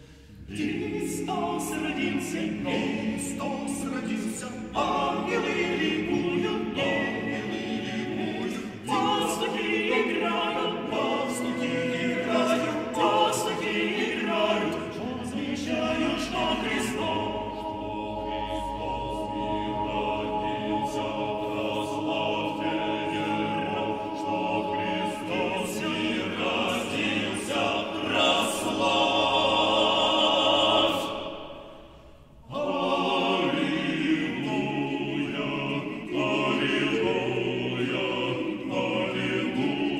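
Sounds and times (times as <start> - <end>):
men's a cappella choir singing: 0.0 - 39.9.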